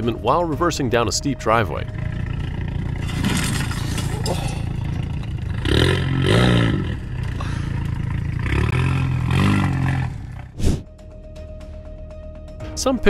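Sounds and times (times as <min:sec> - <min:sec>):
car engine running: 0:00.1 - 0:10.6
car underside scraping pavement: 0:02.0 - 0:08.6.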